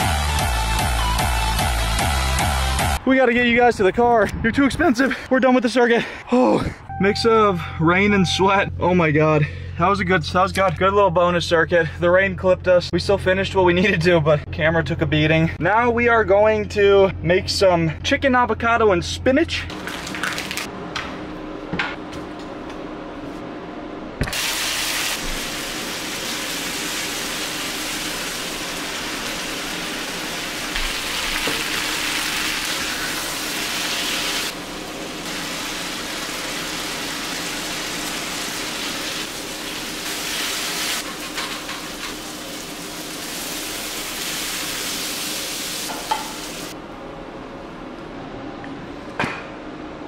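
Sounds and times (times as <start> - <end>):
food sizzling in a frying pan: 24.4 - 46.7.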